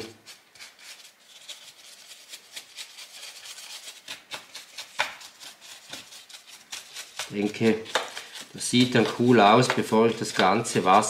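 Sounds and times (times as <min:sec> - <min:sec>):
paintbrush scratching rough surface: 0:00.0 - 0:11.0.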